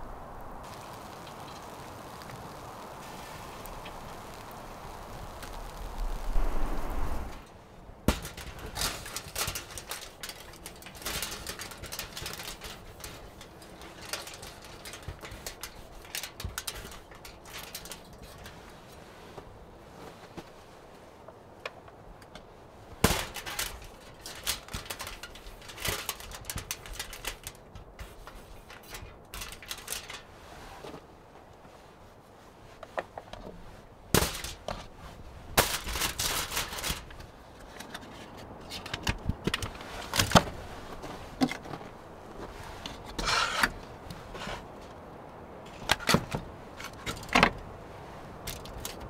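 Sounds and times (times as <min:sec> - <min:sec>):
wood fire crackling and popping: 0:00.0 - 0:18.7, 0:22.2 - 0:30.3, 0:34.1 - 0:34.8, 0:35.4 - 0:37.3.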